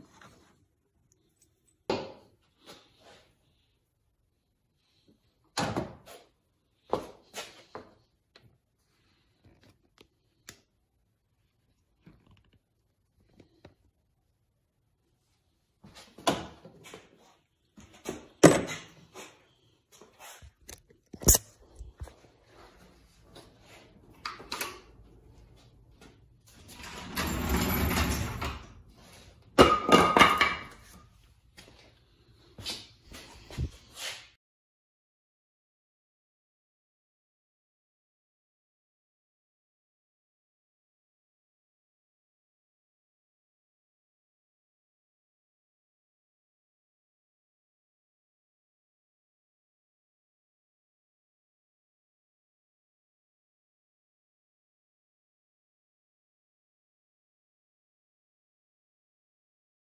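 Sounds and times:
scraping and shuffling: 30.6 - 34.3.

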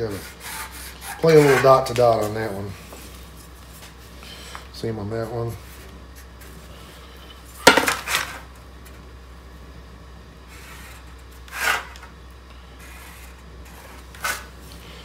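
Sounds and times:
marker scraping: 0.1 - 2.4, 10.5 - 12.0, 12.8 - 14.5.

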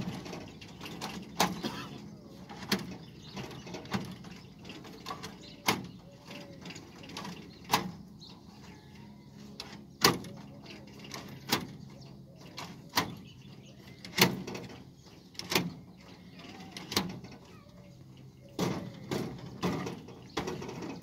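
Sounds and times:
plastic and metal clacks: 0.0 - 8.1, 18.4 - 21.0.

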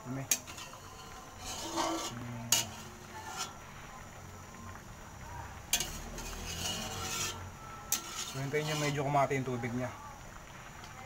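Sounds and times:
metal spatula scraping a wok: 0.0 - 3.8, 5.7 - 9.3
water boiling: 0.0 - 11.0.

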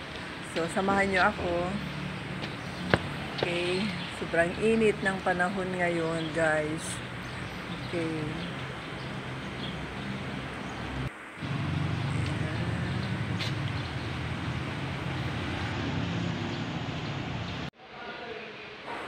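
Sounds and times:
outdoor background noise: 0.0 - 19.0
low motor hum: 7.7 - 17.7.

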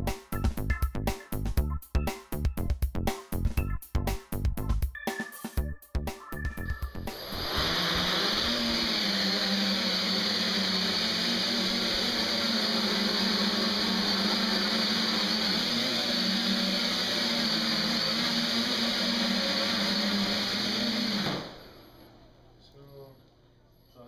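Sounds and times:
drone motors whirring: 6.9 - 21.8.

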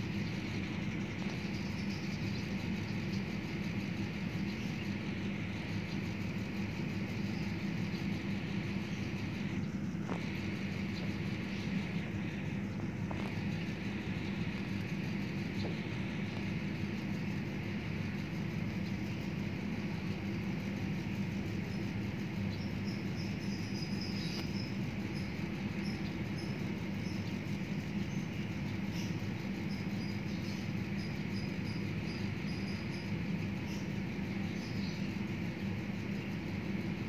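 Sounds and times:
low hum: 0.0 - 29.6.

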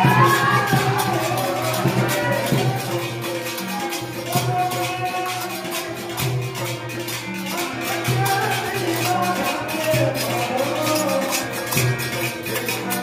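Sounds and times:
group singing devotional song: 0.0 - 3.1
fast percussion rhythm: 0.0 - 13.0.

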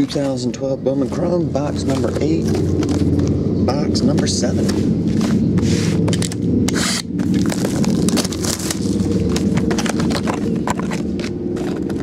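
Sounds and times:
steady low hum: 0.0 - 12.0
cardboard scraping: 1.0 - 3.3, 4.2 - 12.0
plastic wrap crinkling: 7.2 - 12.0.

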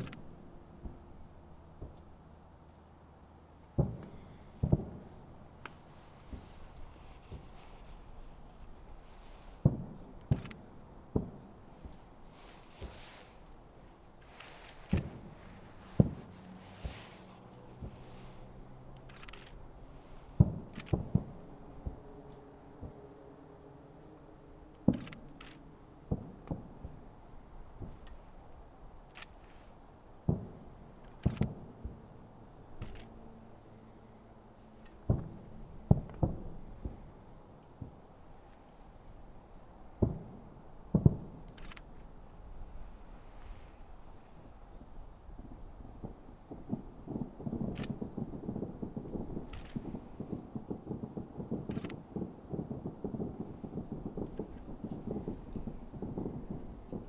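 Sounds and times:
distant firework booms: 3.7 - 7.6, 9.5 - 10.4, 11.1 - 13.4, 14.8 - 18.4, 20.0 - 22.0, 26.1 - 27.0, 30.3 - 32.0, 35.0 - 37.1, 40.0 - 41.4, 45.3 - 57.0
faint sharp clicks: 19.0 - 19.6, 24.8 - 25.6, 29.1 - 29.5, 51.6 - 52.0.

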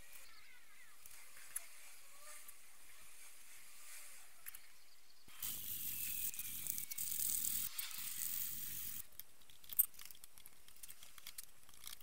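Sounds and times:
blade clicks and squeaks: 5.4 - 12.0.

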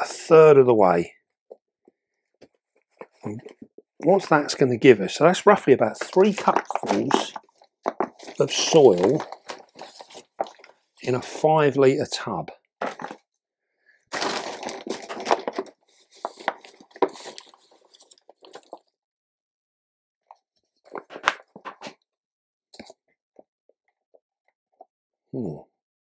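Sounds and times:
soil pressed by hand in plastic tub: 5.8 - 10.7.

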